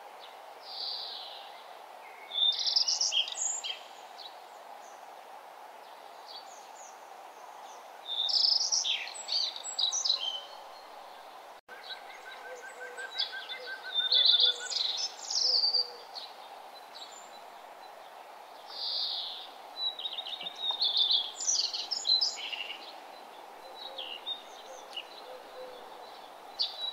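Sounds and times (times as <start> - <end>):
background hiss: 0.0 - 26.9
birds chirping: 5.9 - 26.9.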